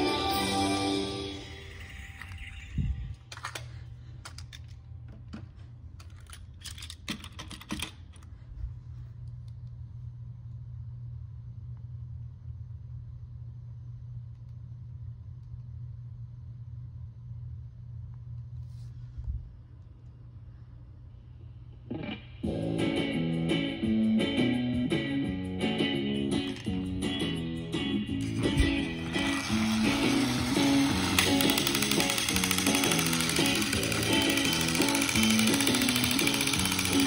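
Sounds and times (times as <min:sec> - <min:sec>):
steady low hum: 0:08.1 - 0:37.0
sharp clicks: 0:30.8 - 0:37.0.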